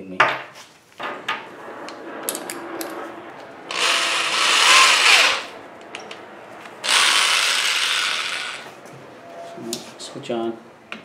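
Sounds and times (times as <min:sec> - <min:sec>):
electric drill running: 0:03.7 - 0:05.5, 0:06.8 - 0:08.7.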